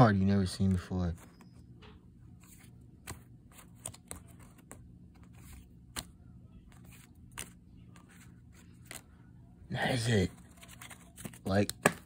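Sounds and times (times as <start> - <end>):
cards sliding by hand: 2.3 - 9.1.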